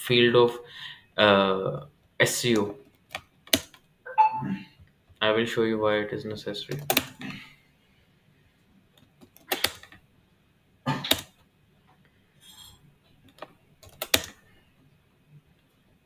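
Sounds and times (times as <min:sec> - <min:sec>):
mouse and keyboard clicking: 0:09.2 - 0:10.0, 0:13.3 - 0:14.4.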